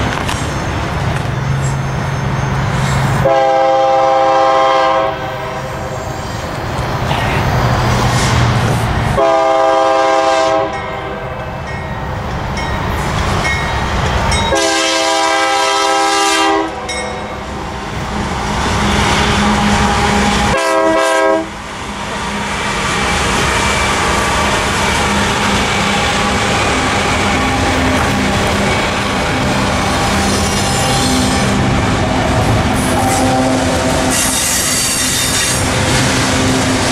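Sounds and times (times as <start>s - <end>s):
diesel locomotive engines: 0.0s - 36.9s
freight train rolling past: 0.0s - 36.9s
locomotive horn blasts: 3.2s - 5.7s, 9.2s - 11.4s, 14.5s - 17.0s, 19.4s - 21.6s, 32.8s - 35.6s.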